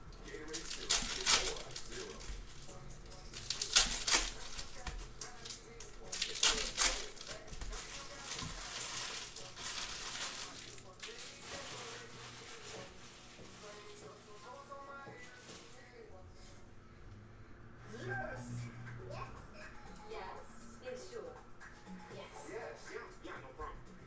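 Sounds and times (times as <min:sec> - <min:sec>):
foil wrappers crinkling: 0:00.1 - 0:16.1
cards shuffled by hand: 0:00.5 - 0:02.6, 0:03.3 - 0:13.8.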